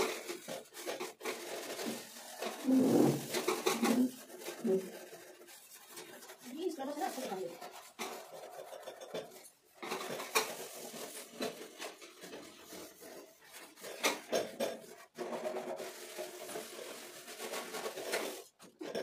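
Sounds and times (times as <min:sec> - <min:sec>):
steel wool scrubbing metal: 0:00.3 - 0:14.4.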